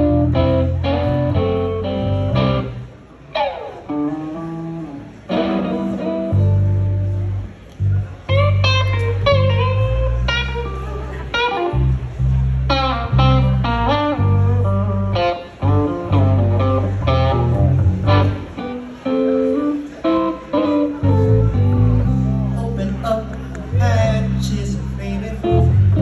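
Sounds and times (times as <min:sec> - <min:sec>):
low sustained bass notes: 0:00.0 - 0:02.9, 0:04.4 - 0:19.0, 0:20.8 - 0:26.0
electric blues guitar lead: 0:00.0 - 0:26.0.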